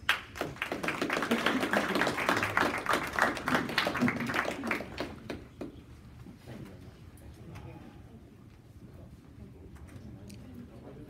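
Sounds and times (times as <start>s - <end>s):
small group clapping: 0.0s - 5.8s.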